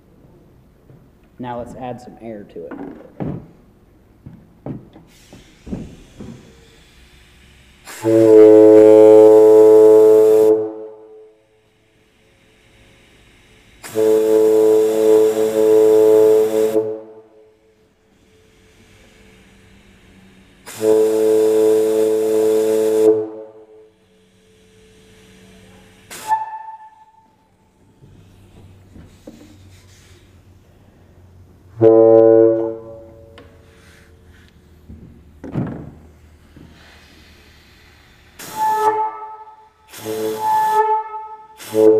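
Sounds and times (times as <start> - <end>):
air horn blasts: 7.8 - 11.4, 13.8 - 17.7, 20.6 - 24.1, 25.5 - 27.5, 31.7 - 33.7, 38.4 - 41.9.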